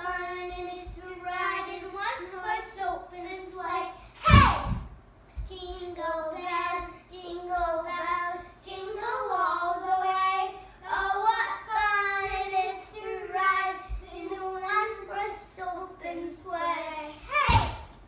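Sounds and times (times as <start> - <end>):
young children singing: 5.9 - 17.3.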